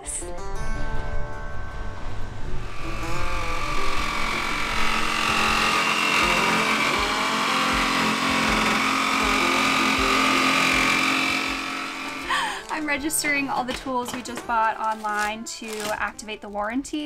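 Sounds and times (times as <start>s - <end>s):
jigsaw cutting wood: 2.6s - 12.8s.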